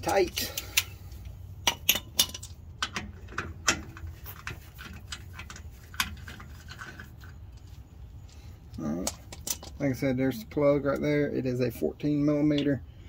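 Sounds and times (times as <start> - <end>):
metal plug clicks and clinks: 1.6 - 3.8.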